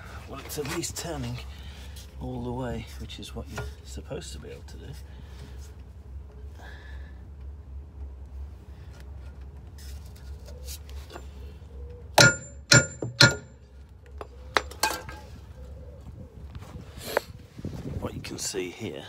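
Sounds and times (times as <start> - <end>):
hammer clanging on steel: 12.2 - 13.6.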